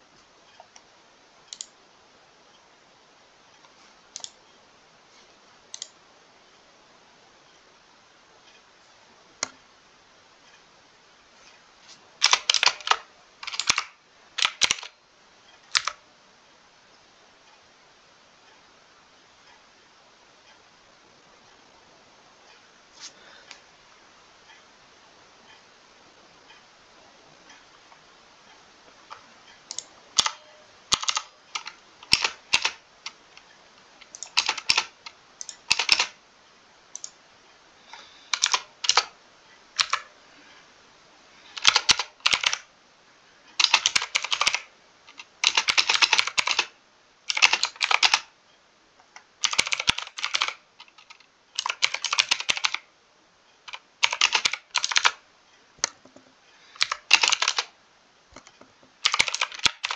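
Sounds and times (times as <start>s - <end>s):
mechanical keyboard typing: 12.2s - 15.0s, 15.7s - 16.0s, 29.1s - 33.2s, 34.0s - 36.2s, 38.3s - 39.1s, 39.8s - 40.1s, 41.6s - 42.7s, 43.6s - 48.3s, 49.4s - 52.9s, 53.7s - 55.2s, 56.8s - 57.7s, 58.4s - 59.9s.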